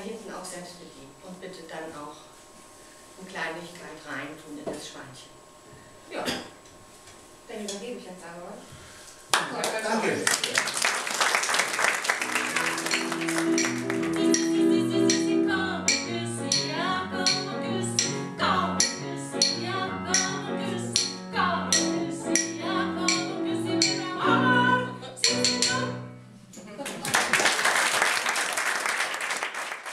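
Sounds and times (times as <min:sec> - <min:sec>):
audience applause: 0:09.3 - 0:14.4, 0:26.8 - 0:29.9
piano accompaniment: 0:11.8 - 0:26.4
woman singing: 0:14.1 - 0:26.0.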